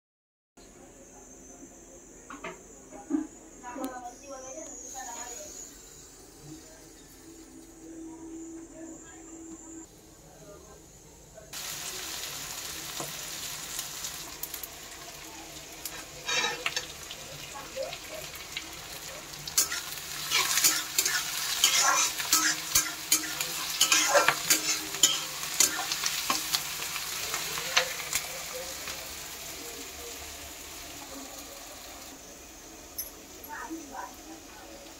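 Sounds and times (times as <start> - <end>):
oil sizzling in a pan: 4.4 - 7.8, 9.8 - 34.9
spatula scraping the pan: 15.9 - 16.9, 19.5 - 26.6.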